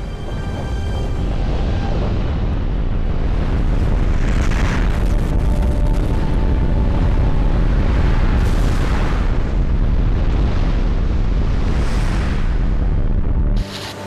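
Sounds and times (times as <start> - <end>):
landslide rumble: 0.0 - 13.6.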